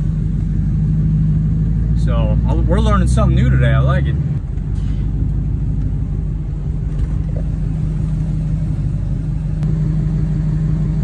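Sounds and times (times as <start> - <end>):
truck engine running: 0.0 - 11.0.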